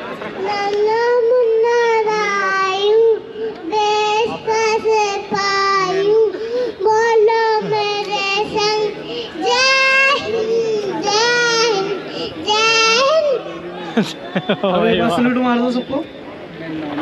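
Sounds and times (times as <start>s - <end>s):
child singing unaccompanied: 0.4s - 13.4s
child breathing: 3.1s - 3.8s, 6.2s - 7.0s, 8.9s - 9.6s, 10.2s - 12.5s.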